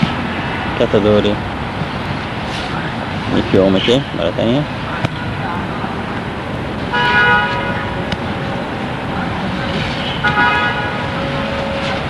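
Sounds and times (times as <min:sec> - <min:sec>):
traffic rush: 0:00.0 - 0:12.0
car horns honking: 0:06.9 - 0:08.0, 0:09.8 - 0:12.0
low horn tone held: 0:06.9 - 0:08.0, 0:09.6 - 0:12.0.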